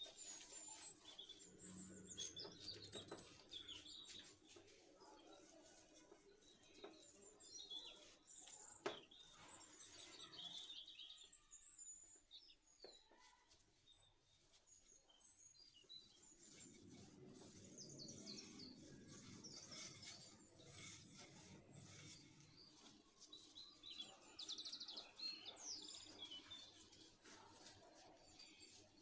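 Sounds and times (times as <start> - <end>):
birds chirping: 0.0 - 13.3, 14.7 - 29.0
rolling pin rolling dough: 16.2 - 24.4.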